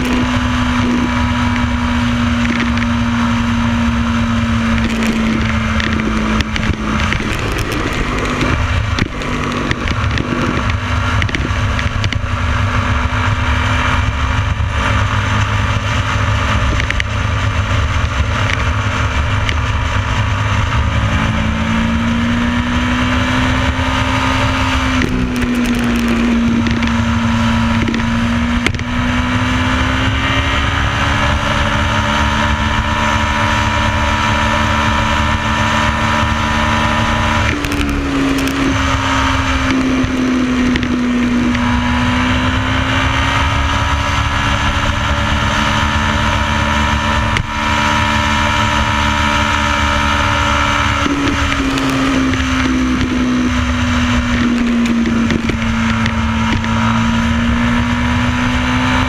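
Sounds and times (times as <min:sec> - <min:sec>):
motorcycle engine running: 0:00.0 - 0:59.0
wind rushing over camera: 0:00.0 - 0:59.0.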